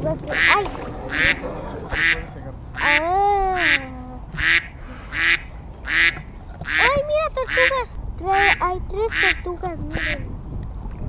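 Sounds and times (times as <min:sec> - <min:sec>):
duck quacking: 0:00.3 - 0:10.2
child's drawn-out voice: 0:02.8 - 0:04.4, 0:06.7 - 0:10.3.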